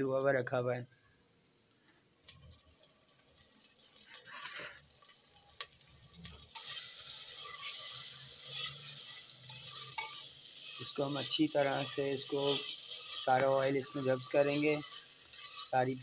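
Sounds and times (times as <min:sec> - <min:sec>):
greens sizzling in hot oil: 0:02.2 - 0:16.0
metal spatula stirring: 0:02.3 - 0:16.0.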